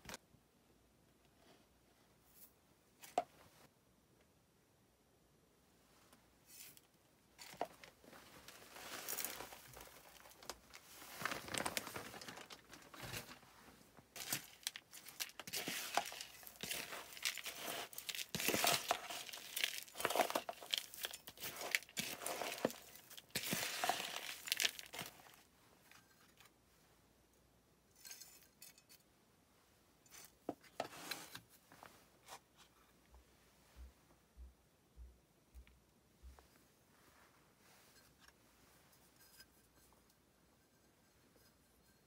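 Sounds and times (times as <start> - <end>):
potting mix rustling and crunching: 7.4 - 25.5
grains clicking against plastic: 8.8 - 13.4, 14.2 - 25.4.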